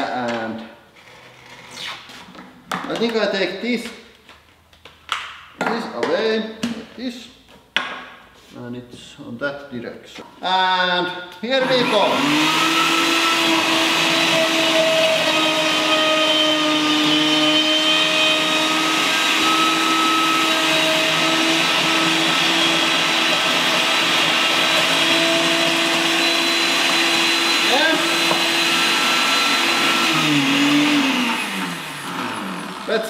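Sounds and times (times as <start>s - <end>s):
blender motor running: 11.6s - 33.0s.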